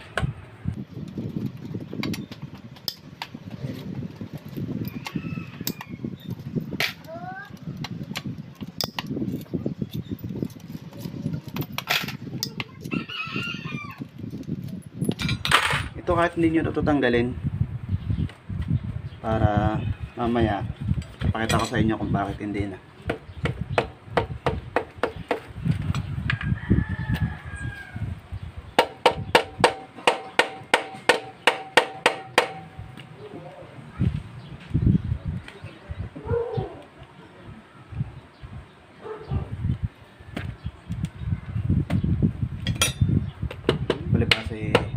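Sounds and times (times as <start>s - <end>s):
rooster crowing: 4.8s - 6.1s, 12.9s - 14.0s, 26.3s - 28.2s
metal parts clinking and knocking: 8.2s - 12.6s, 14.6s - 16.0s, 42.6s - 43.1s
mallet knocking on metal: 28.8s - 32.7s.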